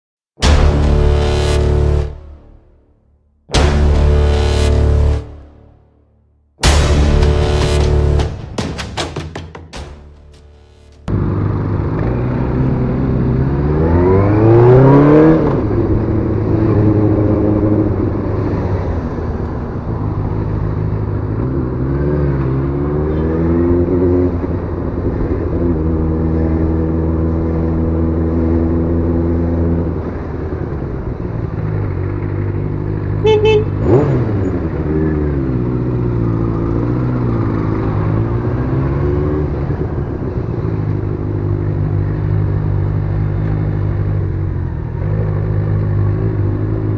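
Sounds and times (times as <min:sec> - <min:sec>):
motorcycle engine revving: 0:11.0 - 0:46.9
motorcycle horn beeps: 0:33.2 - 0:34.1.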